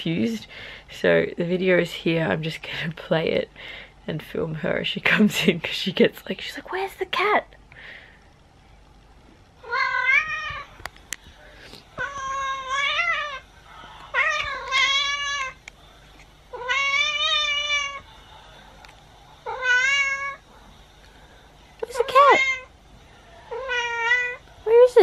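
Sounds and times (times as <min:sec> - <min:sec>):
cat meowing: 0:09.6 - 0:10.7, 0:16.5 - 0:18.0, 0:19.4 - 0:20.4, 0:23.5 - 0:24.4.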